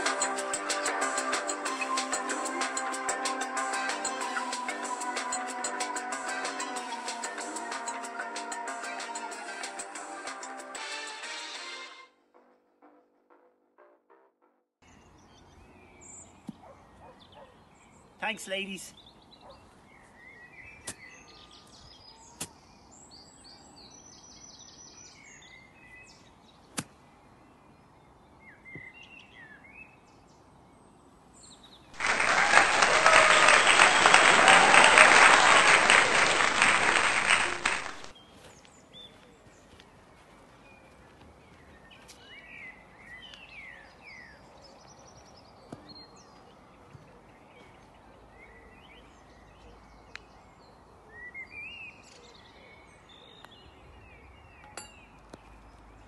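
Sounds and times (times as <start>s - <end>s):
crowd applause: 32.0s - 38.1s.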